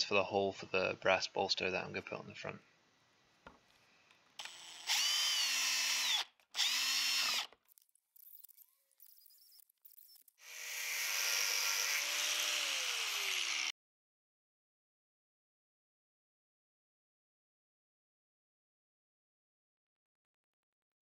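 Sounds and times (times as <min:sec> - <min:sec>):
angle grinder cutting metal: 0:04.4 - 0:07.5, 0:08.4 - 0:13.7
power drill boring into metal: 0:04.4 - 0:07.6, 0:08.3 - 0:13.7.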